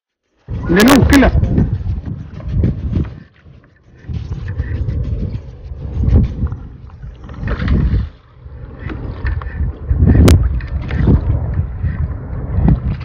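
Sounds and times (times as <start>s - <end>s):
wind buffeting microphone: 0.4s - 13.0s
water lapping at kayak hull: 7.2s - 12.1s.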